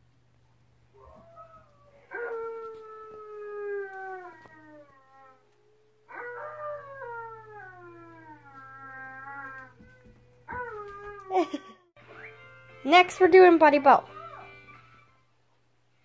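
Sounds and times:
dog howling through tv speaker: 0:00.9 - 0:11.5, 0:14.1 - 0:15.3.

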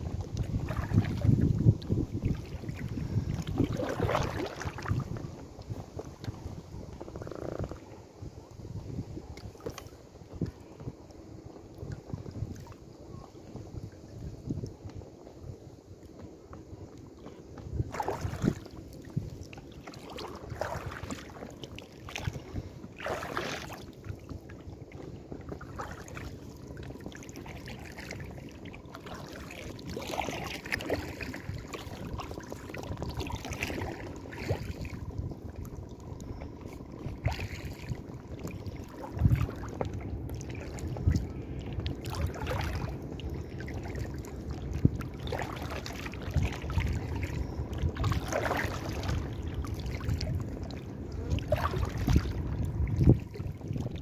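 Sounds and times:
paddle splashing and dripping: 0:00.0 - 0:06.4, 0:17.1 - 0:54.0
water lapping against hull: 0:00.0 - 0:54.0.

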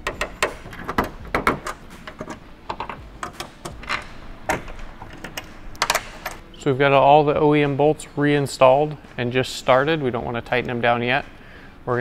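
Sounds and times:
panel tapping: 0:00.0 - 0:06.4.

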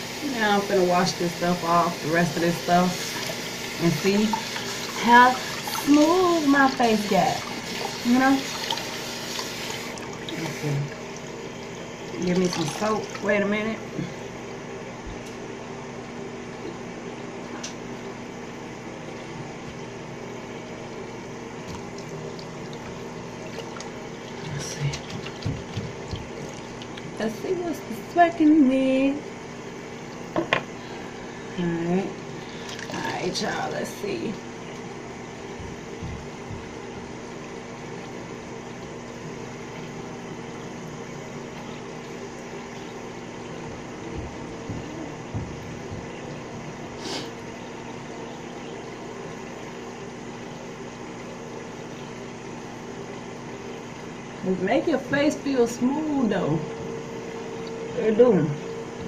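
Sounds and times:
water running from tap: 0:00.0 - 0:13.9, 0:21.2 - 0:59.0
low hum: 0:29.0 - 0:59.0.

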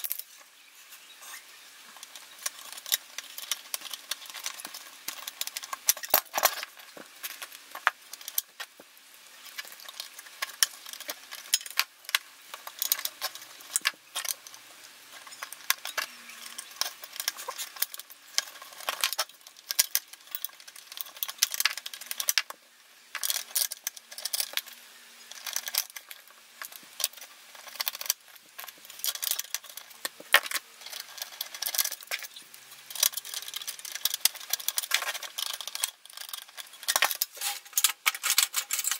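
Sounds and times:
metal tools clicking on metal: 0:09.4 - 0:22.6, 0:25.3 - 0:38.9.

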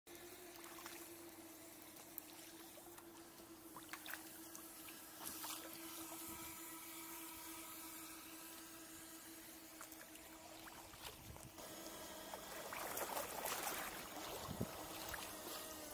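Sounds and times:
small water splashes: 0:00.1 - 0:06.4, 0:09.6 - 0:15.9
faint steady hum: 0:00.1 - 0:15.9
water lapping at hull: 0:00.1 - 0:15.9
paddle dipping and dripping: 0:09.8 - 0:15.9.

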